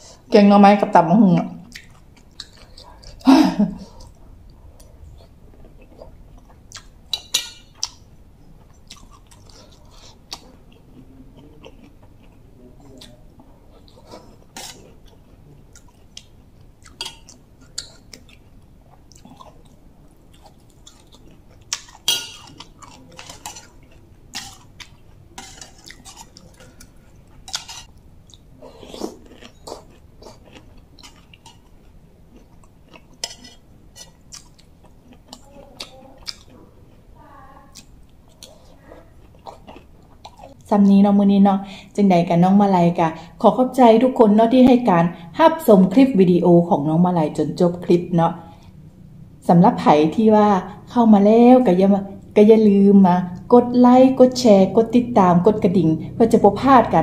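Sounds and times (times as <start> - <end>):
chewing and mouth sounds: 1.6 - 3.2, 3.8 - 37.1, 37.7 - 40.7.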